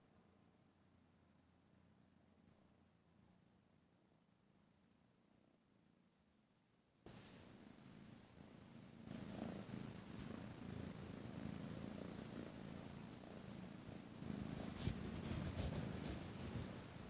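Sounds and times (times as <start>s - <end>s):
kitten purring: 7.1s - 17.0s.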